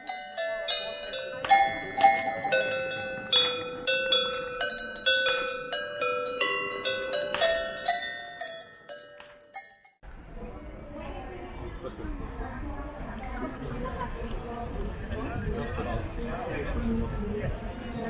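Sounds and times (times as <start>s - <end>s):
cowbells clanging a melody: 0.0s - 10.0s.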